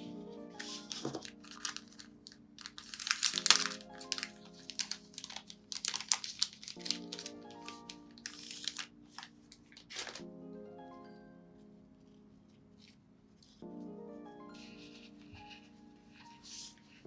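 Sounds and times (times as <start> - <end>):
soft lo-fi music: 0.0 - 17.0
plastic packet crinkling: 0.6 - 10.2.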